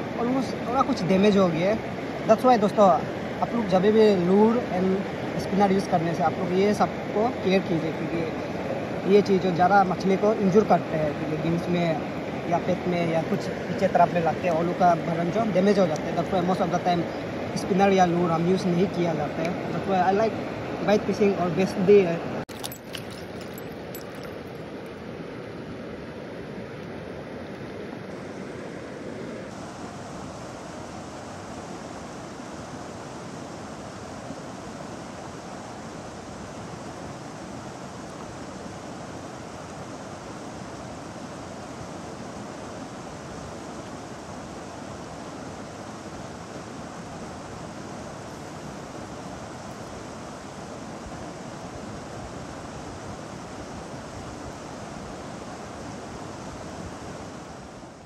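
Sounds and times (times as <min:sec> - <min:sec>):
fast-flowing river rushing: 0:00.0 - 0:26.7.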